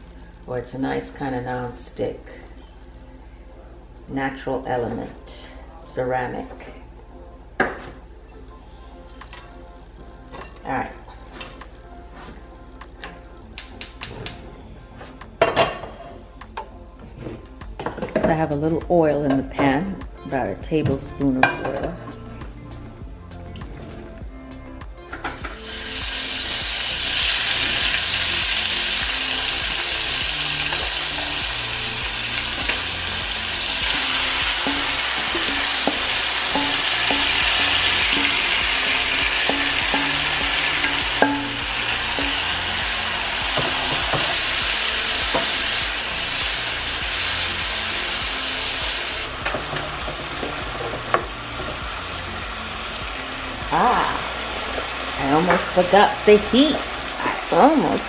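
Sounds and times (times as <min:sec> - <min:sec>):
meat sizzling in hot oil: 0:25.5 - 0:58.0
spatula clinking and scraping: 0:33.9 - 0:42.4.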